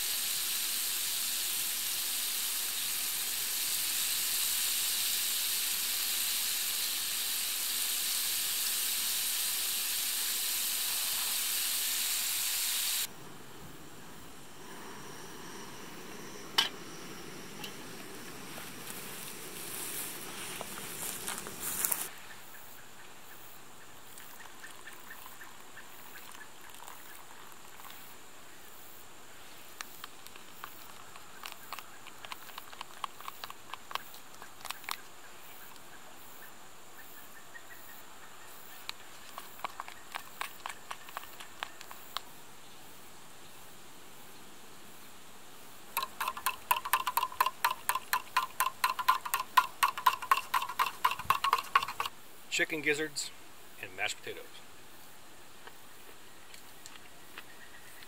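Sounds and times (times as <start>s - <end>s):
fork stirring mashed potatoes: 46.0s - 52.1s
metallic clinks in steel mug: 46.0s - 52.1s.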